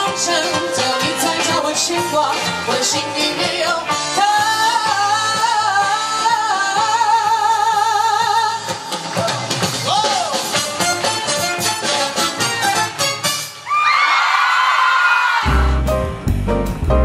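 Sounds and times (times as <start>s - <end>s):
woman singing with vibrato: 0.0s - 8.8s
live pop band: 0.0s - 14.0s, 14.9s - 17.0s.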